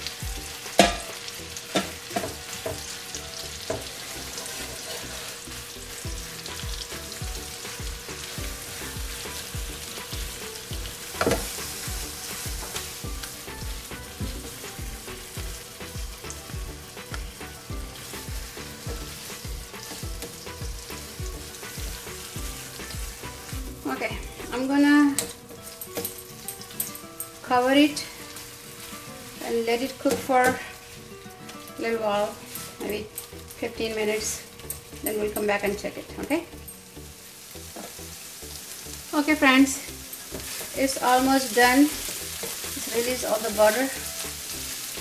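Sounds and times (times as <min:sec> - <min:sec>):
spatula stirring in a pan: 0:00.0 - 0:23.9, 0:37.2 - 0:45.0
meat sizzling in a frying pan: 0:00.0 - 0:45.0.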